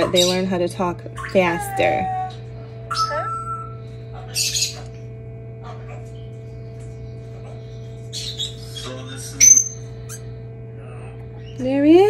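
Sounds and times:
chick squeaking: 0:00.0 - 0:00.6, 0:01.2 - 0:04.9, 0:08.1 - 0:10.2
incubator hum: 0:00.0 - 0:12.0.

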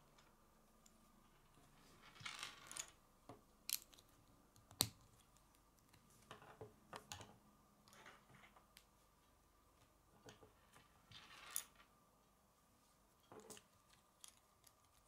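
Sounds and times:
plastic pieces clicking and rattling: 0:03.7 - 0:04.9.

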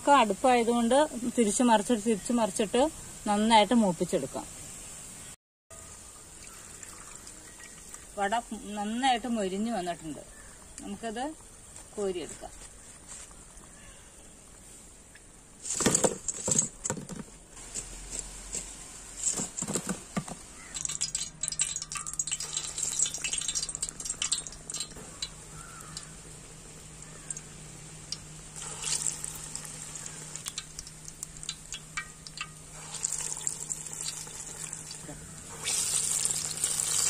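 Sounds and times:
hot oil crackling and sizzling: 0:06.4 - 0:09.4, 0:20.4 - 0:37.0.

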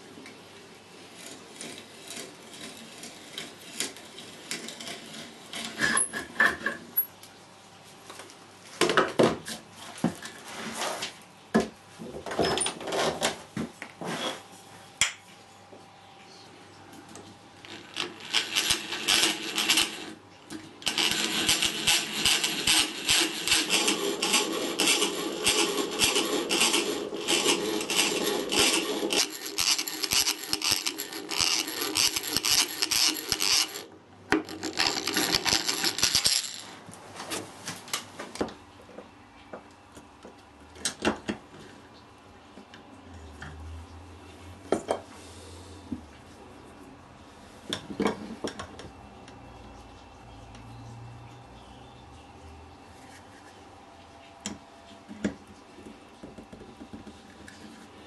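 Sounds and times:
brace and bit scraping wood: 0:01.1 - 0:06.1, 0:17.7 - 0:20.2, 0:20.8 - 0:36.7
drill bit rasping into wood: 0:20.8 - 0:33.8.

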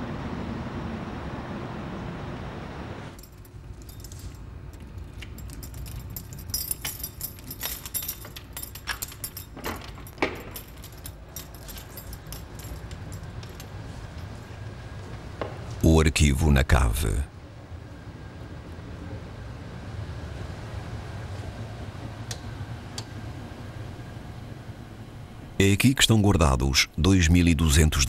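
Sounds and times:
keys jangling: 0:03.2 - 0:14.7.

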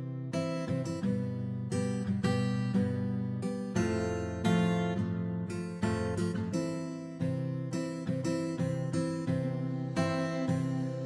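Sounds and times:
instrumental background music: 0:09.2 - 0:11.0.

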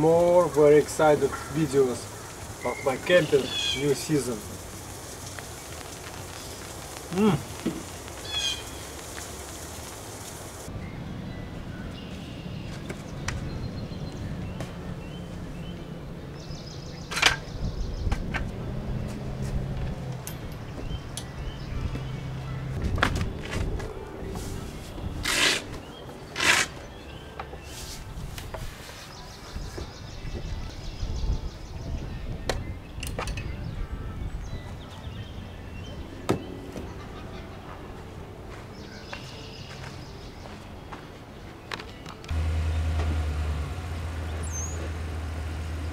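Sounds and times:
birds chirping: 0:00.0 - 0:45.9
sharp crackle: 0:00.8 - 0:10.7.

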